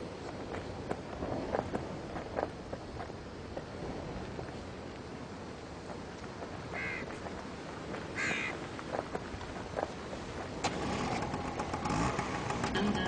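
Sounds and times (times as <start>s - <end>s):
bird giving harsh calls: 6.8s - 7.1s, 8.2s - 8.6s.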